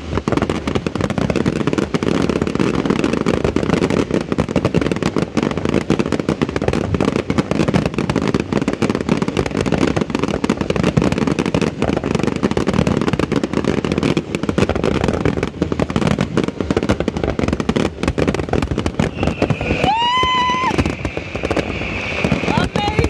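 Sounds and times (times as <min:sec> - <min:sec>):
fireworks crackle: 0:00.0 - 0:23.0
fireworks shell bursts: 0:19.0 - 0:23.0.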